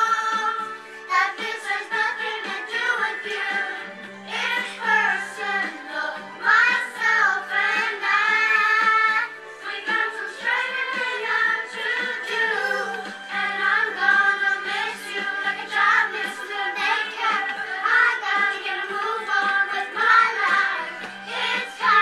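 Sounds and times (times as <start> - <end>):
backing music: 0.0 - 22.0
children singing: 0.0 - 22.0.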